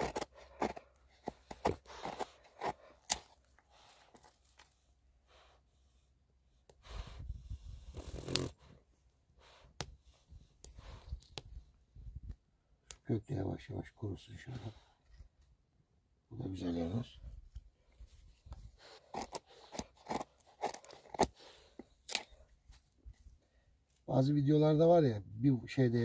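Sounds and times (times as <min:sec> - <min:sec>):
rustling and scraping: 0:00.0 - 0:04.8.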